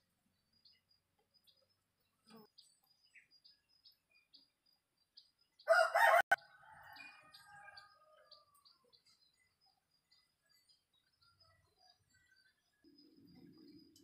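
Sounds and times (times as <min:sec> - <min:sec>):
rooster crowing: 0:05.7 - 0:08.5.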